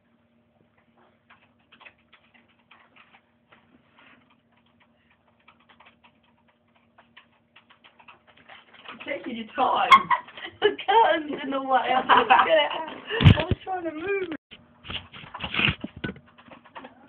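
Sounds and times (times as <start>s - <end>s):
computer keyboard typing: 4.5s - 9.3s.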